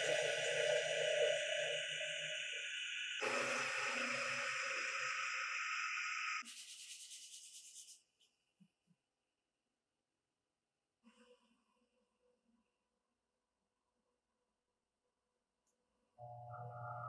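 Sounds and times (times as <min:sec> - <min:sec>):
bit cutting wood hiss: 0:00.0 - 0:06.4.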